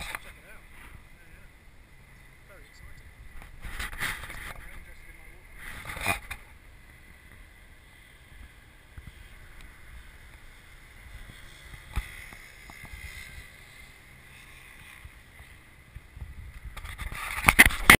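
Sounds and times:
outdoor wind: 0.0 - 18.0
camera handling rustles and bumps: 3.2 - 4.9, 5.5 - 7.4, 14.8 - 18.0.

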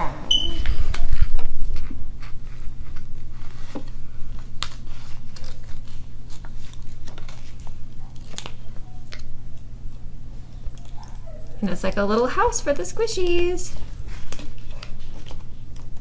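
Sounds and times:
paper and cardboard crinkling: 0.7 - 9.3, 13.2 - 16.0.

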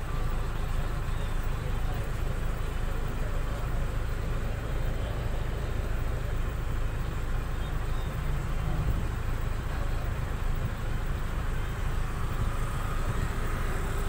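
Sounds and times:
bus engine rumble: 0.0 - 14.0
tyre road noise: 0.0 - 14.0.

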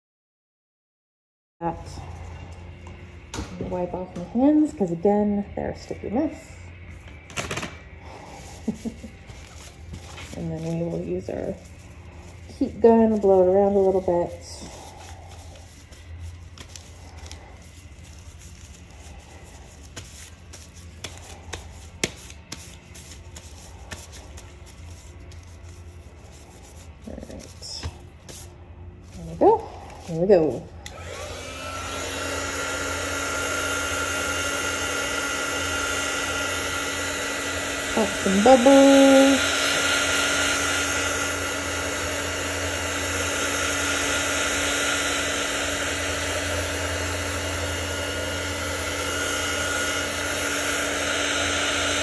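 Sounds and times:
steady low hum: 1.6 - 33.1
heat gun blowing air: 29.8 - 52.0.

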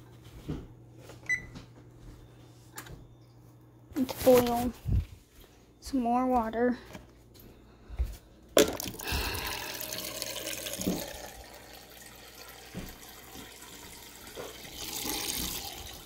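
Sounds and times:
water running: 8.6 - 16.0.

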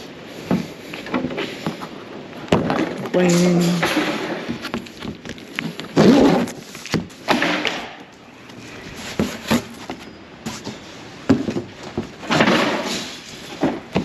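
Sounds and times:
knocks and thumps on cardboard: 11.3 - 12.9, 13.6 - 14.0.

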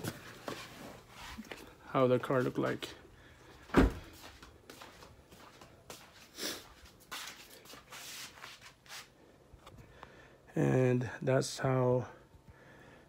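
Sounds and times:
shuffling footsteps: 0.0 - 9.2.

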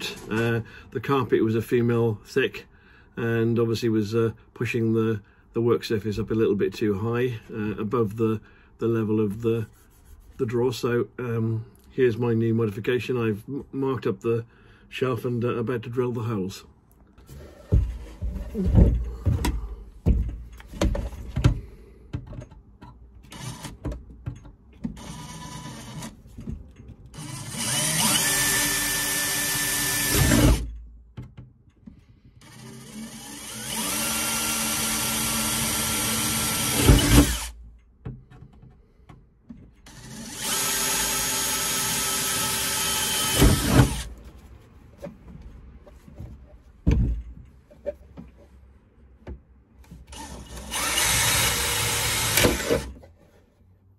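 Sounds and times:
drill motor whine: 27.2 - 30.6, 32.4 - 37.5, 39.9 - 44.1, 50.1 - 52.9.

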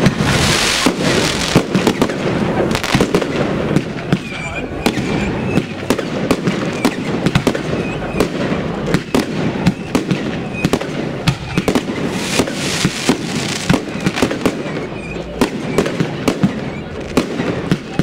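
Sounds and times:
rocket rushing hiss: 0.0 - 4.1, 8.6 - 15.0
fireworks bangs and pops: 0.0 - 18.0.

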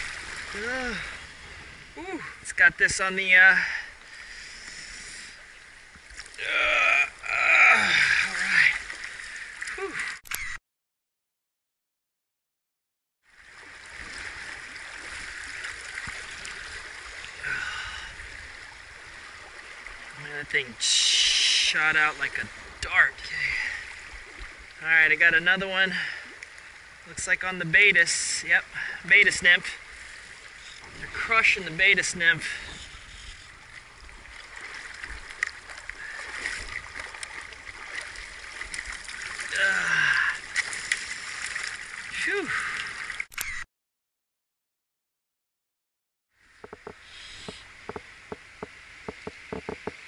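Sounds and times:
river current rushing: 0.0 - 9.7, 46.4 - 50.0
stream water rippling: 0.0 - 10.6, 13.2 - 43.6, 46.3 - 50.0.

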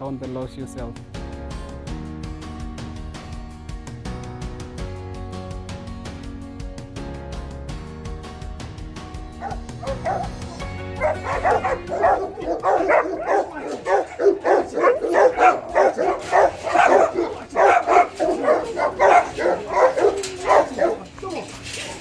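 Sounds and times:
background music: 0.0 - 22.0
dog barking rapidly: 9.4 - 21.1.

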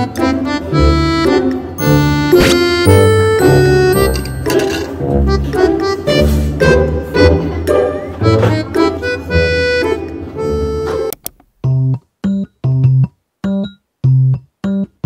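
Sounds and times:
cheerful background music: 0.0 - 11.1.

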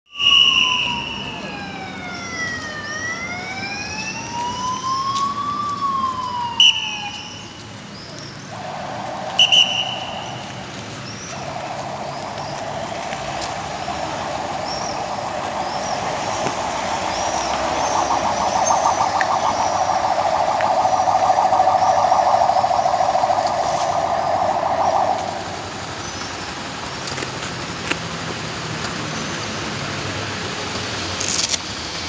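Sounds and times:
police siren wailing: 0.1 - 7.8, 8.5 - 26.1
approaching vehicles: 0.1 - 32.0
short sharp high blasts: 8.6 - 10.5.

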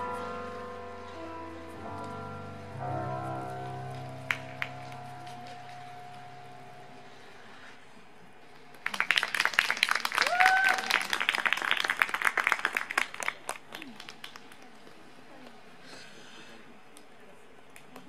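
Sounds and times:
crowd clapping: 4.2 - 6.2, 8.7 - 15.0.

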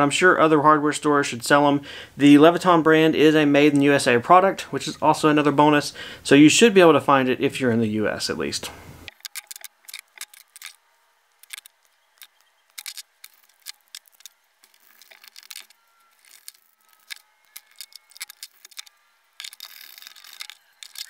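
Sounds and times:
wires and tools clicking on bench: 9.0 - 10.8, 11.4 - 21.0
screwdriver turning screw: 9.1 - 10.8, 11.4 - 21.0.

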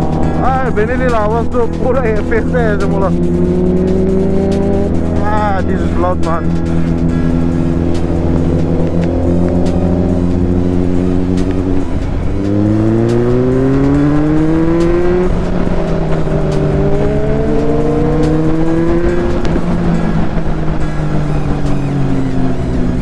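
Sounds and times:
motorcycle engine accelerating: 0.0 - 23.0.

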